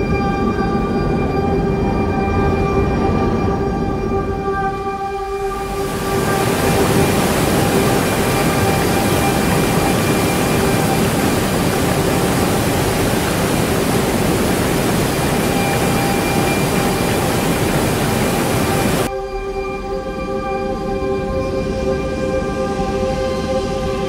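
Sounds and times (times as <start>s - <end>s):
background music tones: 0.0s - 24.0s
loud rushing noise: 5.5s - 19.1s.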